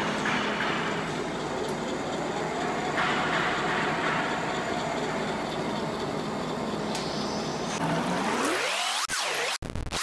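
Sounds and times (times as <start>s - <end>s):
lathe humming: 0.0s - 7.8s.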